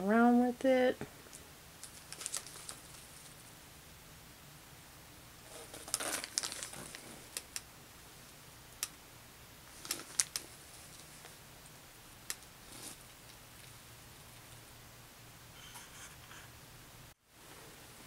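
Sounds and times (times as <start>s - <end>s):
packaging rustle: 1.8s - 3.5s, 5.4s - 7.6s, 9.7s - 11.4s, 12.3s - 13.8s.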